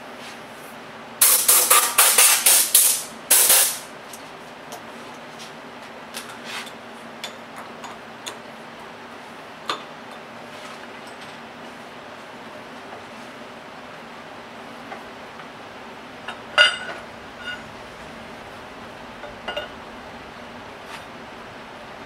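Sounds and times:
compressed air blasts: 1.2 - 3.9.

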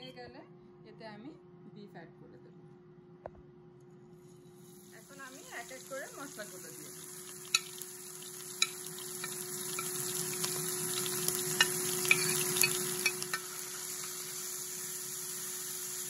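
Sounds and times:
faint hum: 0.0 - 16.0
beef sizzling in hot oil: 4.6 - 16.0
fork tapping and scraping plate: 8.6 - 10.0, 11.4 - 13.5.

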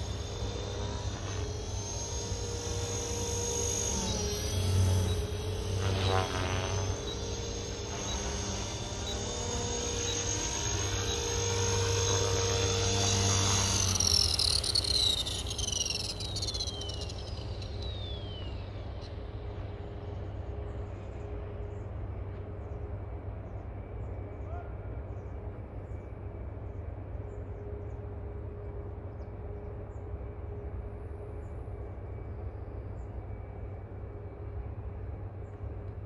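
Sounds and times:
model helicopter motor whine: 0.0 - 22.3.

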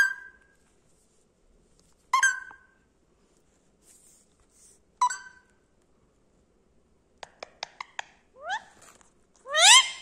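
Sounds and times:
parrot calling: 2.1 - 2.8, 7.7 - 8.8, 9.4 - 10.0.

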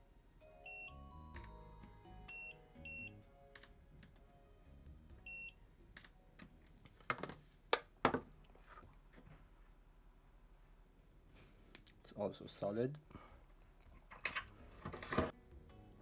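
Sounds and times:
soft background music: 0.0 - 7.7, 14.1 - 16.0
short beeps: 2.3 - 3.2.

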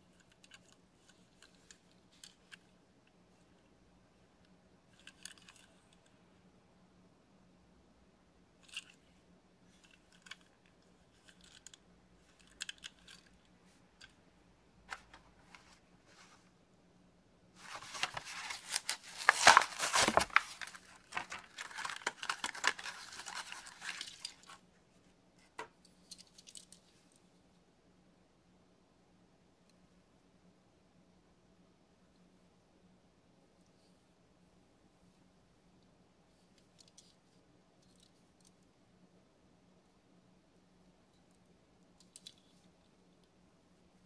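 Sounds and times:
card and plastic tearing: 17.6 - 24.6
package clicks and rustles: 17.6 - 24.6.

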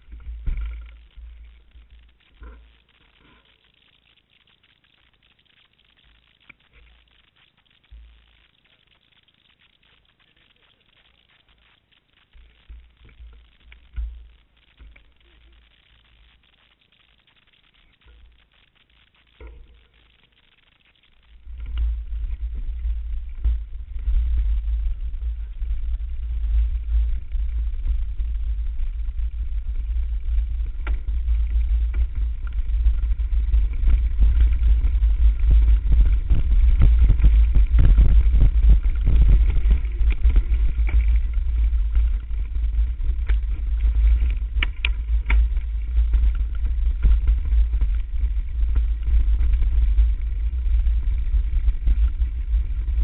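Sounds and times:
bike rattling over bumpy trail: 0.0 - 4.6, 21.3 - 53.0
wind rumble on microphone: 21.3 - 53.0.

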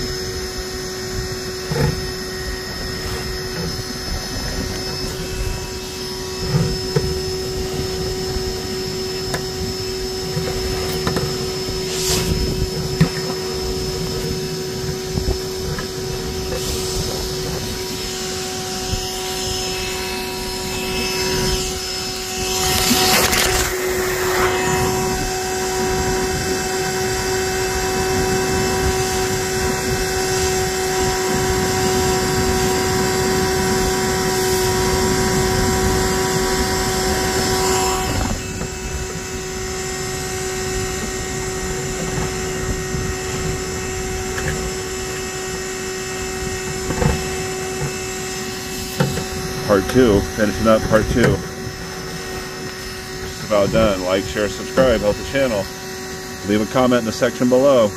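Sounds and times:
bee vacuum humming: 0.0 - 57.9
rush of air: 11.4 - 26.5.

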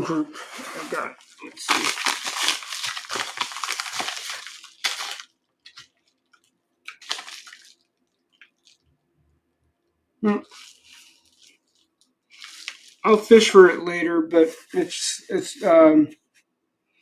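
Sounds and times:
plastic wrapping crinkling: 0.5 - 8.9, 10.4 - 13.4.

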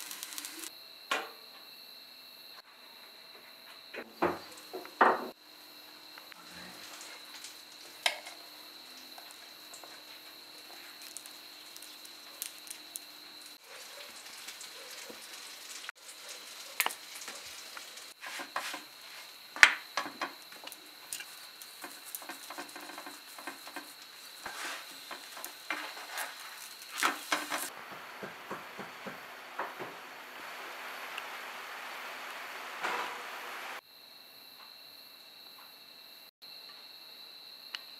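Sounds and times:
flatbread sizzling on a griddle: 0.0 - 0.7, 4.4 - 33.8.

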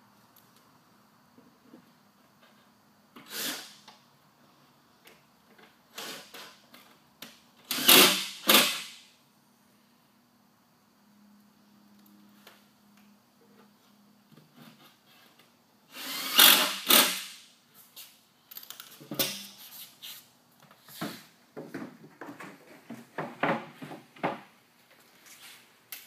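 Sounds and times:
cordless drill running: 15.9 - 17.2.

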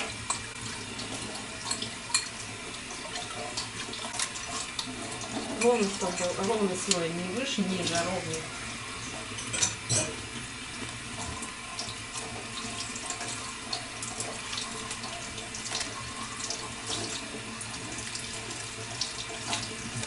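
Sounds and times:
tap running into a sink: 9.0 - 20.0.

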